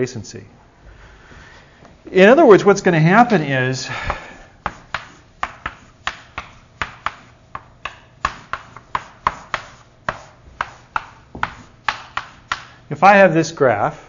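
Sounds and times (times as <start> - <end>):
chalk tapping on board: 4.6 - 12.8.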